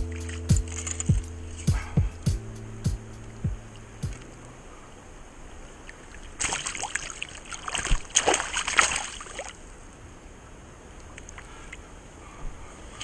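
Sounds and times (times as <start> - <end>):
water splashing and sloshing: 0.0 - 2.0, 5.6 - 9.7.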